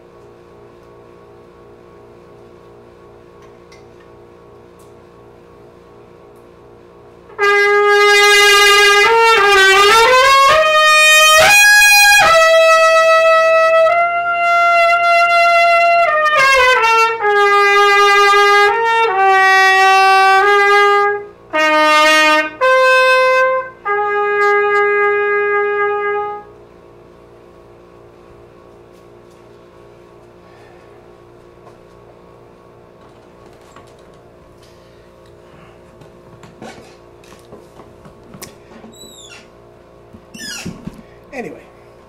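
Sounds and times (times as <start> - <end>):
solo trumpet: 7.3 - 26.6.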